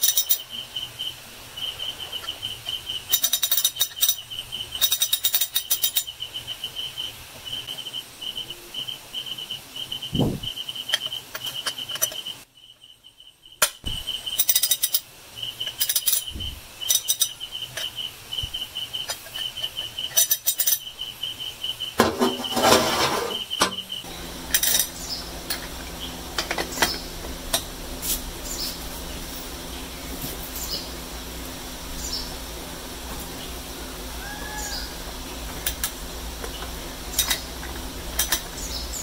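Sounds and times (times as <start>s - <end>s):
crickets chirping: 0.0s - 39.0s
ratchet wrench clicking: 3.1s - 4.2s, 4.8s - 6.1s, 14.4s - 15.0s, 15.6s - 16.3s, 19.1s - 20.9s
low steady hum: 20.8s - 39.0s.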